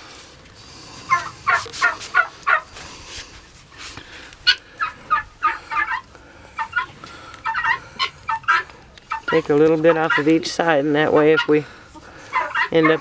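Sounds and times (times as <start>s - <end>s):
guinea fowl calling: 1.1s - 2.7s, 4.4s - 13.0s.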